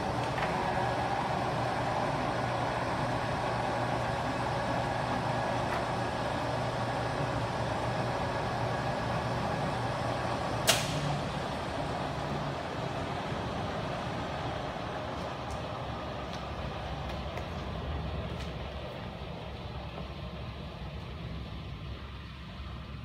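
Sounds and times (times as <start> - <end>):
lathe motor humming: 0.0 - 19.5
sharp metallic clack: 10.6 - 11.1.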